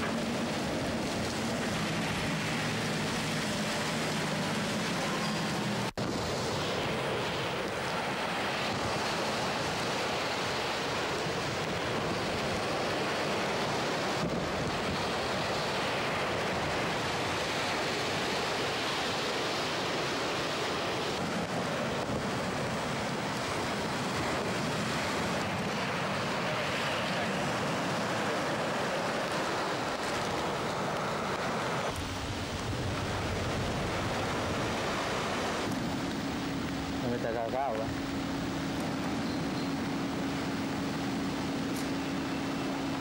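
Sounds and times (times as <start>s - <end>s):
rough surf breaking on beach: 0.0s - 43.0s
wind buffeting microphone: 19.9s - 37.1s.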